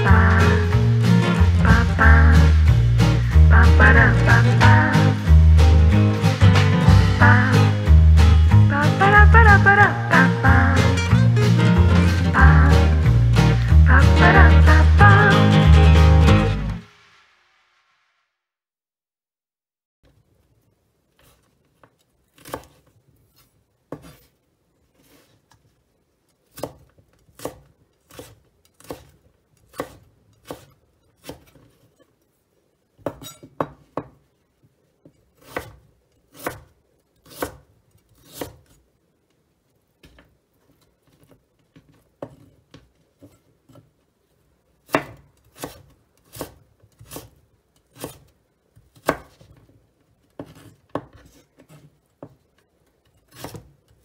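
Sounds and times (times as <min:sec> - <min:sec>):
knife chopping on wooden board: 0:22.3 - 0:24.3, 0:26.5 - 0:31.7, 0:33.0 - 0:34.2, 0:35.4 - 0:37.6, 0:38.2 - 0:38.8, 0:44.9 - 0:49.6, 0:50.3 - 0:52.4, 0:53.2 - 0:53.7.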